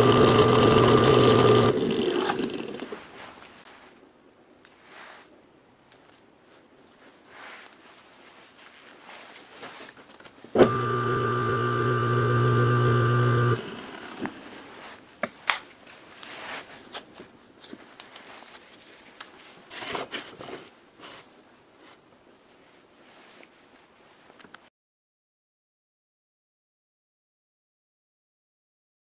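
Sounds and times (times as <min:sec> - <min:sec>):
electric motor humming: 0:00.0 - 0:02.9, 0:10.6 - 0:14.5.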